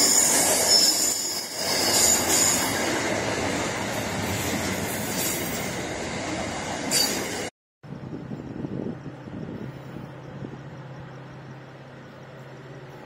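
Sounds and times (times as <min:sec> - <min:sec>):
high squealing of wheels: 0:00.0 - 0:03.2, 0:04.2 - 0:05.8, 0:06.8 - 0:07.5
train wheels rumbling on rails: 0:00.0 - 0:13.0.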